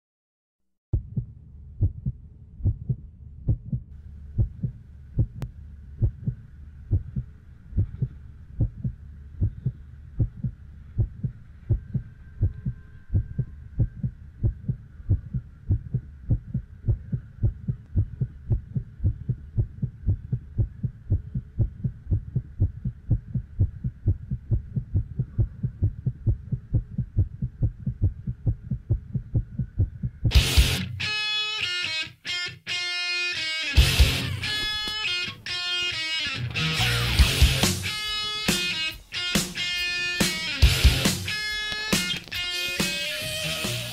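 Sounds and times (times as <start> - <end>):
heartbeat thumps: 1.0 - 30.8
faint steady hum: 1.0 - 31.7.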